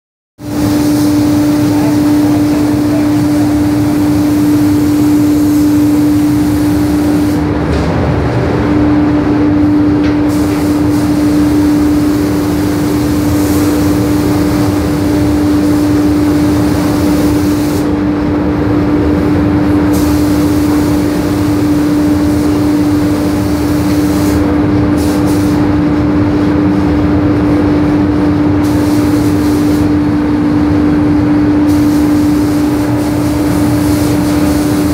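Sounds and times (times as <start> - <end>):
loud mechanical hum: 0.4 - 34.9
paint spray gun hissing: 0.5 - 7.4, 10.3 - 17.9, 19.9 - 24.4, 28.6 - 30.0, 31.7 - 34.9.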